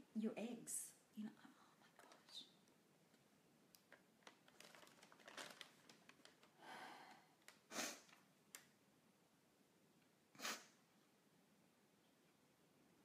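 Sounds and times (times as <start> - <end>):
paper rustling: 3.9 - 6.6
soft breath out: 6.6 - 8.0.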